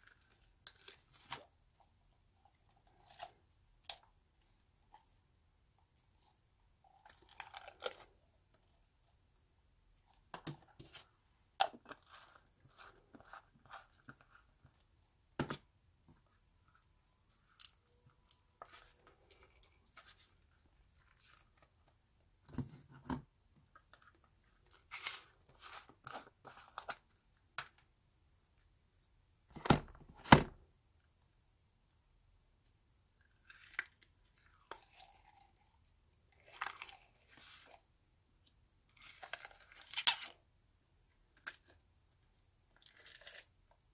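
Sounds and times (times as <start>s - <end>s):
plastic jars handled: 10.0s - 14.8s.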